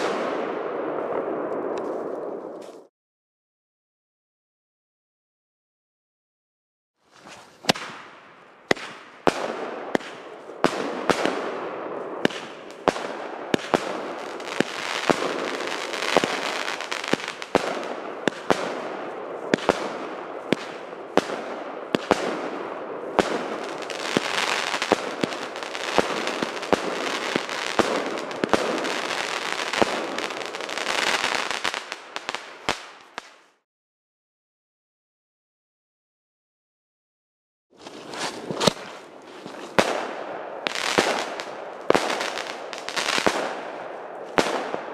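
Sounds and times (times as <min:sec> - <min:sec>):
fireworks crackling: 0:07.2 - 0:33.6, 0:37.8 - 0:44.9
fireworks bangs: 0:07.6 - 0:33.4, 0:38.0 - 0:44.9.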